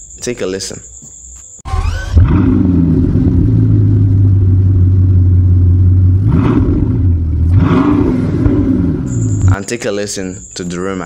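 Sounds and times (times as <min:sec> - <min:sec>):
car engine running loud: 0:02.1 - 0:09.6.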